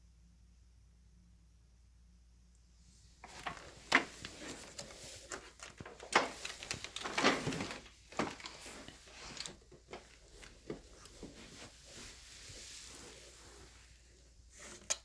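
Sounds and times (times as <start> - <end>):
plastic parts clicking and clattering: 3.2 - 10.8.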